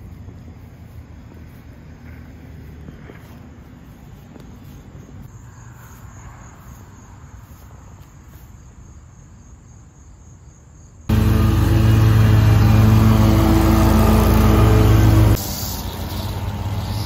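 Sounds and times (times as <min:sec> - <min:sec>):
insects chirping: 0:00.0 - 0:11.6, 0:12.2 - 0:17.0
low outdoor rumble: 0:11.1 - 0:17.0
riding mower engine: 0:11.1 - 0:17.0.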